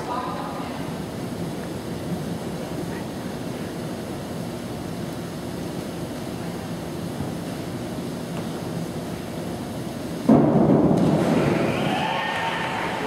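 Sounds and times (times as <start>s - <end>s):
indoor hall background rumble: 0.0s - 13.0s.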